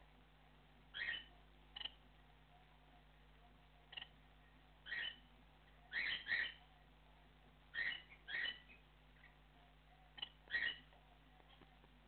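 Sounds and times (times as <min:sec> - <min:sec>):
cockatiel calling: 0:00.9 - 0:02.0, 0:04.8 - 0:05.2, 0:05.9 - 0:06.6, 0:07.7 - 0:09.4, 0:10.2 - 0:10.9.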